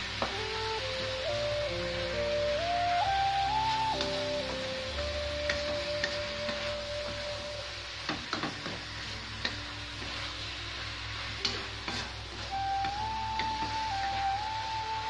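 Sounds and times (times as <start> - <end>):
food sizzling: 0.0 - 15.0
soft background music: 0.0 - 15.0
spatula scraping a wok: 11.1 - 12.6.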